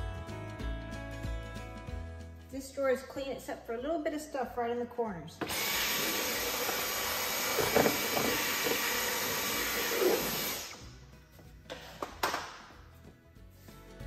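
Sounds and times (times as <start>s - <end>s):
stick vacuum running: 5.4s - 10.9s.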